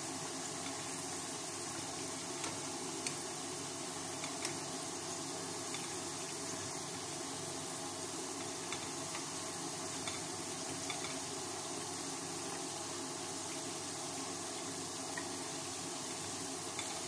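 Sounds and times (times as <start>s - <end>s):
potatoes sizzling in oil: 0.0s - 17.0s
metal tongs clicking on pan: 8.4s - 9.2s, 10.0s - 11.2s.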